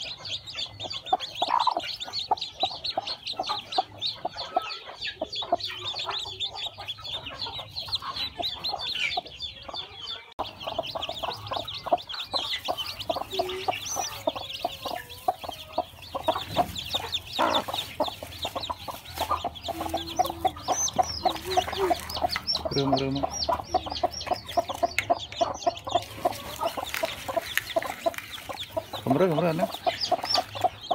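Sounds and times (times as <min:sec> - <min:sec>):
chicks peeping: 0:00.0 - 0:30.9
hen clucking: 0:00.0 - 0:30.9.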